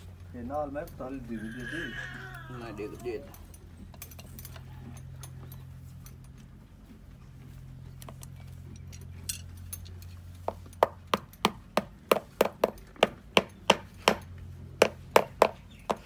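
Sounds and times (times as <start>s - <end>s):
hammer tapping hoof: 10.4s - 16.0s.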